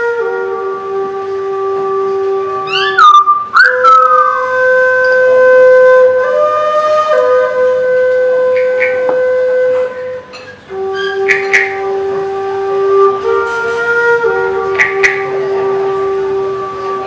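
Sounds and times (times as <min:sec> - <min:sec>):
whistle-like wind instrument: 0:00.0 - 0:17.0
rising bird-like chirps: 0:02.7 - 0:04.4.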